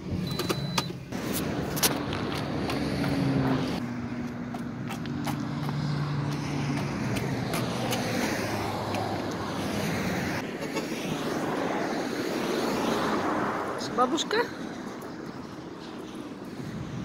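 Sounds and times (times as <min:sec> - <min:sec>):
highway traffic rushing: 0:00.0 - 0:17.0
vehicle engine hum: 0:00.0 - 0:17.0.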